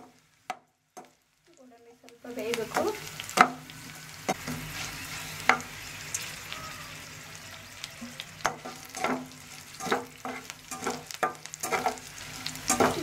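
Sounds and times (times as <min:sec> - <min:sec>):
spatula stirring and tapping pan: 0:00.0 - 0:01.2, 0:02.5 - 0:06.3, 0:08.0 - 0:13.0
frying in oil with faint sizzle: 0:00.0 - 0:13.0.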